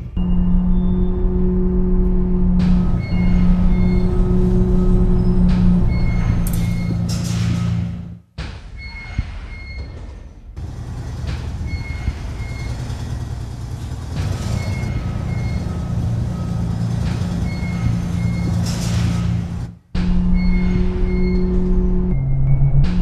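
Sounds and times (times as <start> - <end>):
low bass notes: 0.0 - 8.2, 10.6 - 23.0
bus rumble: 0.0 - 8.3, 10.6 - 23.0
music soundtrack: 0.1 - 7.0.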